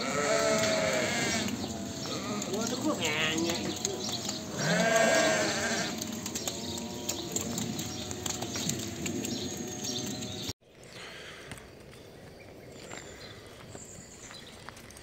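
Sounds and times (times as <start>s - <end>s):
sheep bleating: 0.0s - 9.0s
small clicks: 0.5s - 10.5s.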